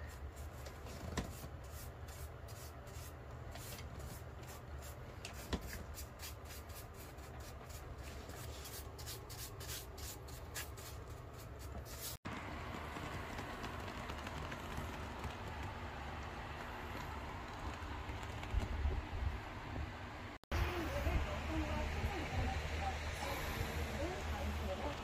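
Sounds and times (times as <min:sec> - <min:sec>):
paintbrush scraping over wood: 0:00.0 - 0:12.2.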